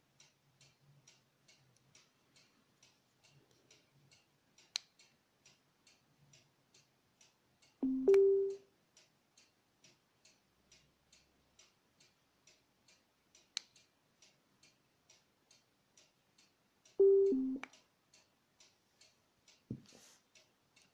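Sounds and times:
faint steady ticking: 0:00.0 - 0:20.9
speaker power-off chime beeps: 0:07.8 - 0:08.6, 0:17.0 - 0:17.6.

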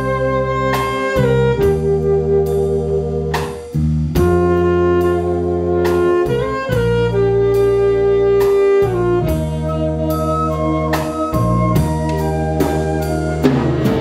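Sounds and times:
saxophones and brass chords: 0:00.0 - 0:14.0
sharp percussion strokes: 0:12.0 - 0:14.0.

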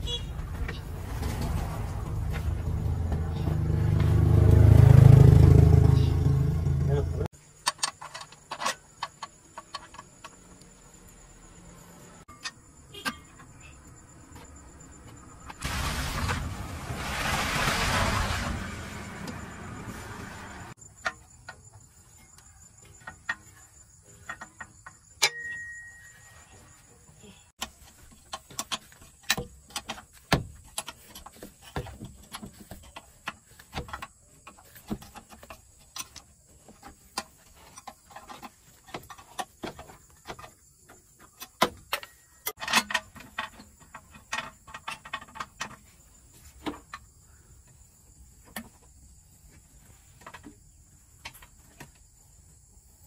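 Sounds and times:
metal tools clicking and knocking: 0:22.3 - 0:26.1.

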